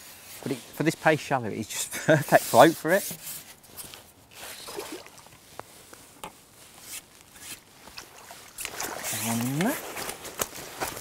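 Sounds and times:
fishing tackle clicking and rustling: 0:07.9 - 0:11.0.

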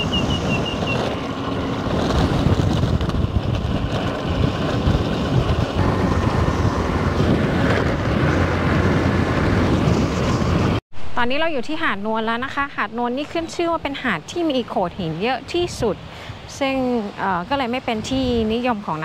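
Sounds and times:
vehicle running: 0:00.0 - 0:10.8
wind buffeting microphone: 0:00.0 - 0:10.8, 0:11.8 - 0:19.0.

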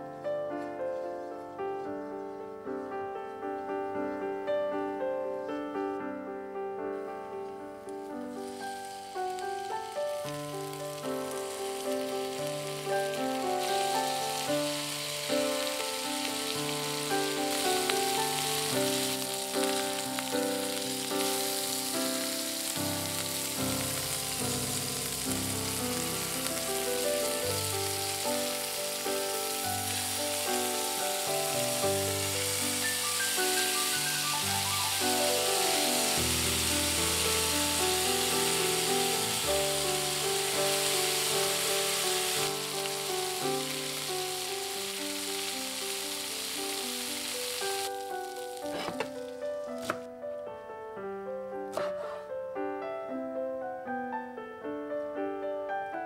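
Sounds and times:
background music: 0:06.4 - 0:50.2
food sizzling in oil: 0:08.3 - 0:50.0.

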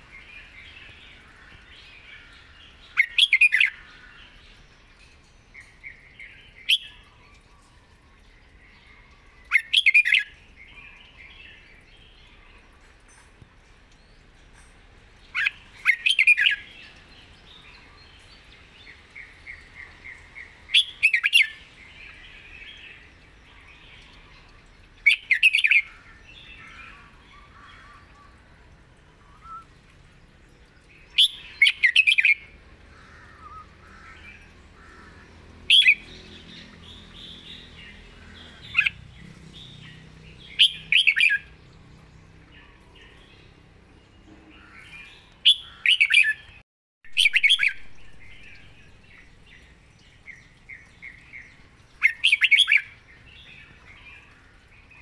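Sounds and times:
soft bird twittering: 0:29.1 - 0:29.8
bird whistling song phrases: 0:29.2 - 0:29.8, 0:33.4 - 0:33.8, 0:47.1 - 0:48.6.

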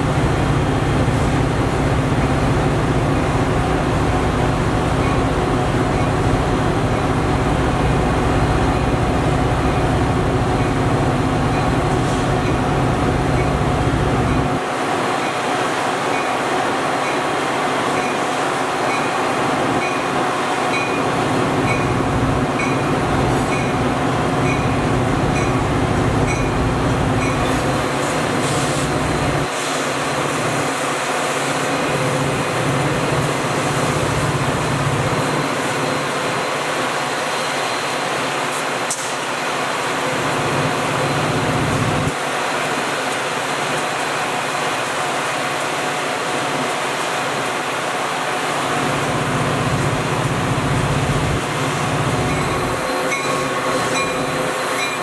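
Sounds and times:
diesel locomotive engine hum: 0:00.0 - 0:55.0
train rumbling past: 0:00.0 - 0:55.0
light rail clicks: 0:16.1 - 0:16.4, 0:17.9 - 0:19.2, 0:19.8 - 0:20.1, 0:20.7 - 0:22.0, 0:22.6 - 0:22.9, 0:23.5 - 0:23.8, 0:24.4 - 0:26.6, 0:27.2 - 0:27.6.

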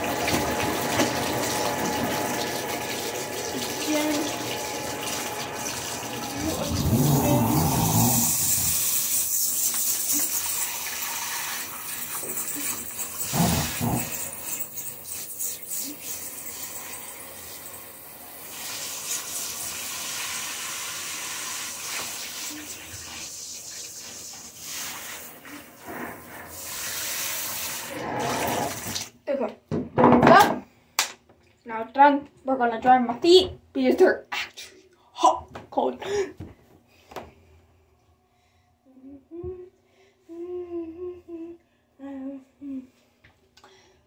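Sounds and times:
tap water splashing: 0:00.0 - 0:02.8, 0:21.9 - 0:22.3.

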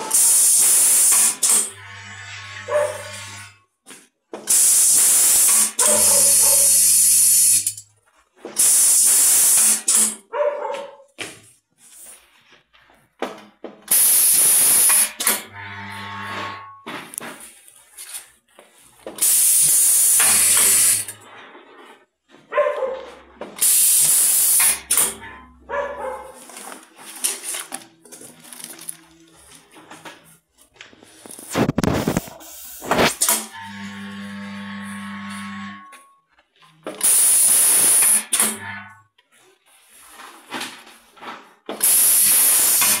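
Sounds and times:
compressed air hissing: 0:32.0 - 0:33.3.

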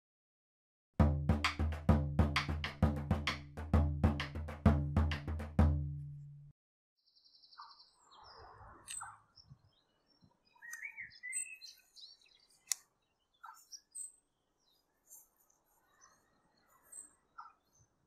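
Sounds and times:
small birds chirping: 0:07.0 - 0:18.0.

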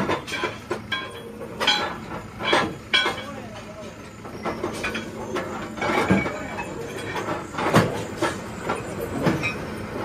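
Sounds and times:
metal clunks and knocks: 0:00.0 - 0:10.0.

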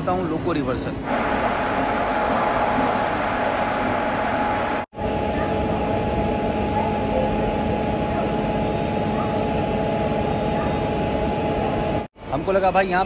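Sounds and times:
electric locomotive humming: 0:01.0 - 0:12.3
machinery tones: 0:01.1 - 0:05.3.

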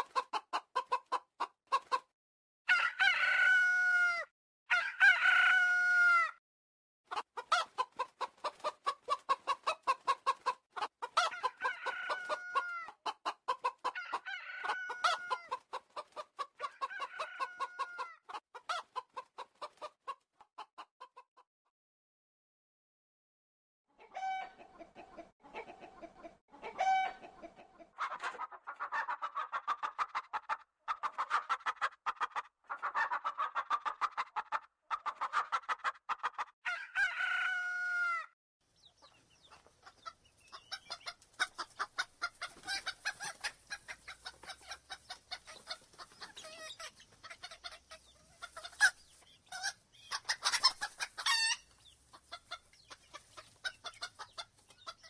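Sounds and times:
chickens clucking: 0:00.0 - 0:02.1, 0:07.1 - 0:21.4, 0:24.0 - 0:37.7, 0:38.8 - 0:55.0
rooster crow: 0:02.7 - 0:06.4, 0:11.2 - 0:12.9, 0:13.9 - 0:15.5, 0:16.8 - 0:18.2, 0:26.8 - 0:27.2, 0:36.6 - 0:38.4.

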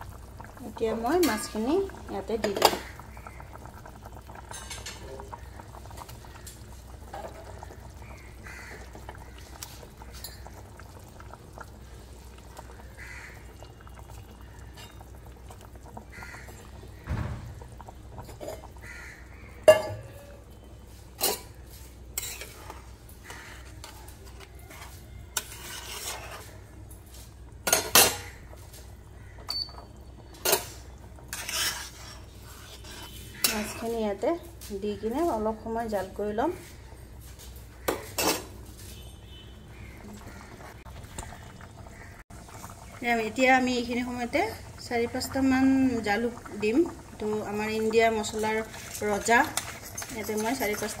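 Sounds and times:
metal spoon clinking on pan: 0:19.7 - 0:20.1, 0:22.2 - 0:22.6, 0:29.5 - 0:29.8.

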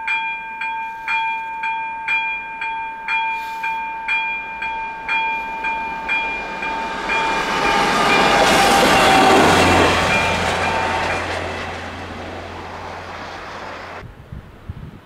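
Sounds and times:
crossing warning bell: 0:00.0 - 0:14.0
train rushing past: 0:03.3 - 0:14.3.

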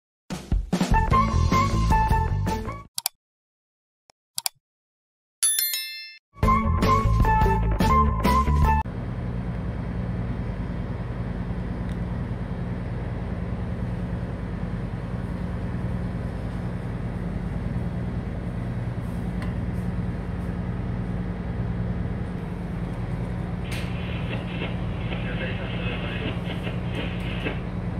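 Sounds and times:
ship engine droning: 0:06.9 - 0:27.9.

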